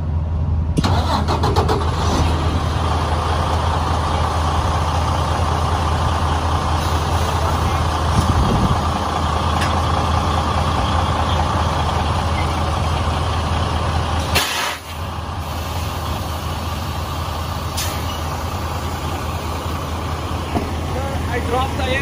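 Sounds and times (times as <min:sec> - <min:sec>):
diesel truck engine idling: 0:00.0 - 0:22.0
compressed air hiss: 0:14.3 - 0:16.4.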